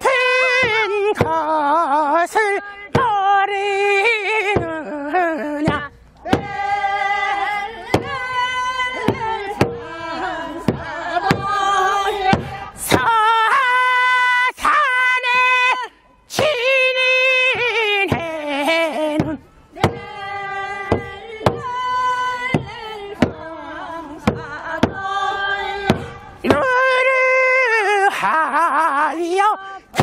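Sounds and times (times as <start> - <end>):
barrel drum beats: 5.6 - 13.1, 19.2 - 23.5, 24.2 - 26.8.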